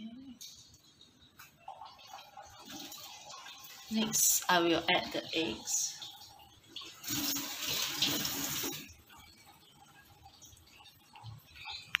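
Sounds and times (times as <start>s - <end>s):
water running from tap: 0.5s - 12.0s.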